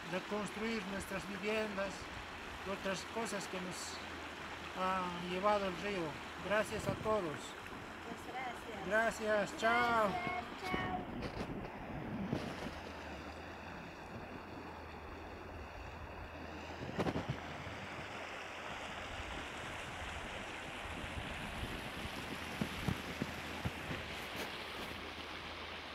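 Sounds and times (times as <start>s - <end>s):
river running over cobbles: 0.0s - 25.9s
wind on microphone: 9.9s - 13.1s, 16.0s - 18.2s, 19.1s - 25.1s.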